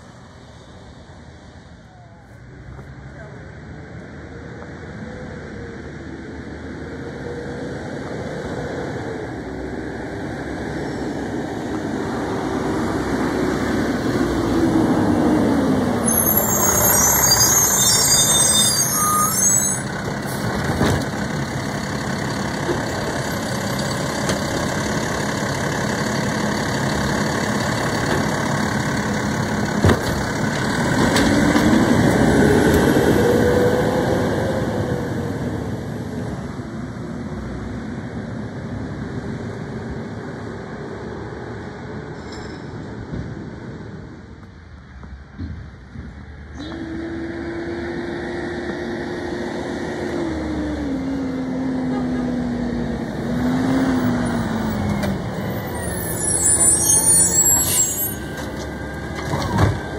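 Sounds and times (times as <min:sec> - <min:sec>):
garbage truck engine: 0:12.6 - 0:36.4, 0:46.5 - 0:59.9
air brakes hissing: 0:55.6 - 0:58.9.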